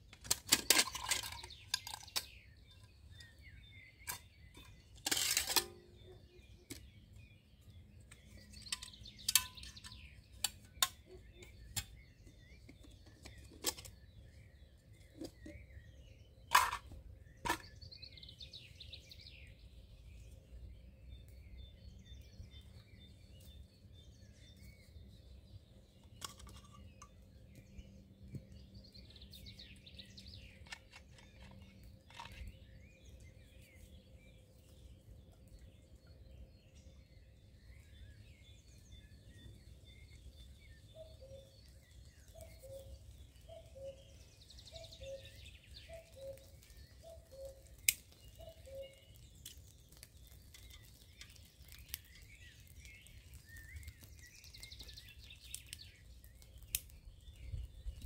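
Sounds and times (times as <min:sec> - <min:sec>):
faint birdsong: 0:00.0 - 0:58.0
metal mess kit clinking: 0:04.1 - 0:05.9, 0:16.5 - 0:16.9.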